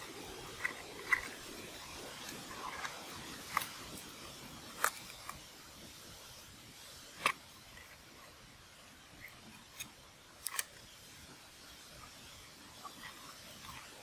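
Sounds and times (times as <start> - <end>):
faint outdoor hiss: 0.0 - 14.0.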